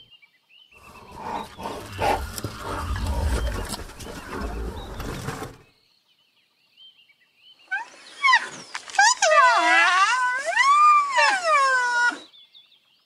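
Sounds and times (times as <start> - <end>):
small birds chirping faintly: 0.0 - 9.0
rhinoceros huffing: 0.8 - 5.7.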